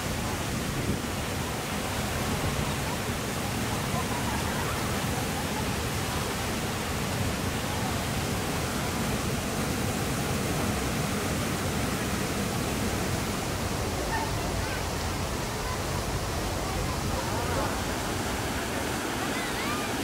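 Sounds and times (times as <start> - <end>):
waterfall pouring into pool: 0.0 - 20.0.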